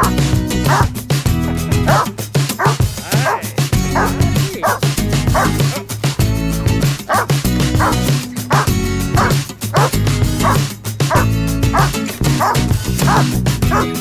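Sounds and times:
dog barking: 0.0s - 0.9s, 1.8s - 3.4s, 4.0s - 5.6s, 7.1s - 14.0s
background music with steady beat: 0.0s - 14.0s.

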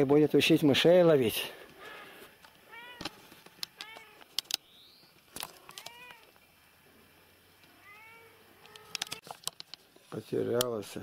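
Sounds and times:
cat meowing: 2.7s - 3.1s, 5.6s - 6.3s, 7.8s - 9.2s
sharp clicks: 3.0s - 6.4s, 8.6s - 9.8s.

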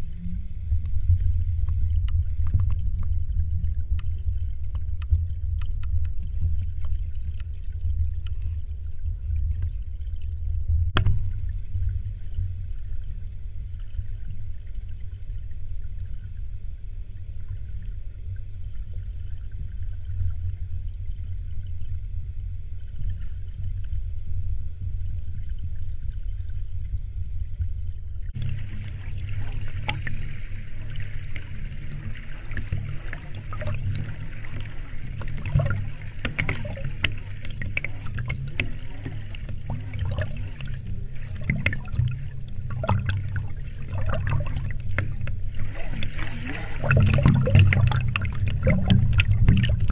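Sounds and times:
muffled underwater stream rumble: 0.0s - 49.9s
water rushing with small clicks: 0.0s - 49.9s.

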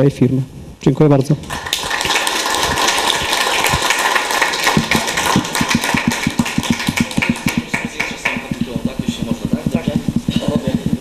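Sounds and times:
people clapping: 1.4s - 11.0s.

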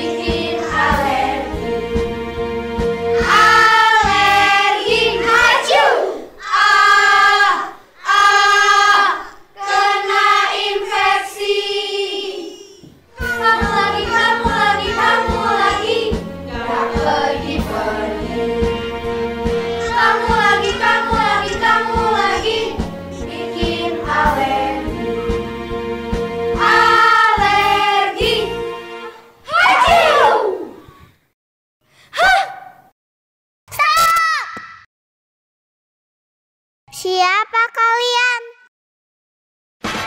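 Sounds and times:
children's song singing: 0.0s - 30.8s.

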